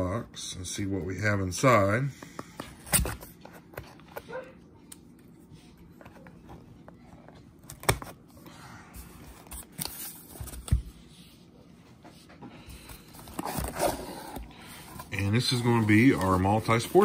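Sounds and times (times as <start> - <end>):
cardboard scraping and rustling: 13.0 - 17.0.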